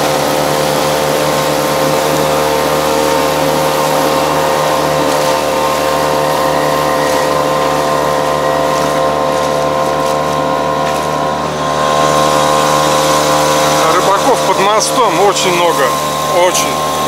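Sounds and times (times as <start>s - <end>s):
outboard motor running: 0.0s - 17.0s.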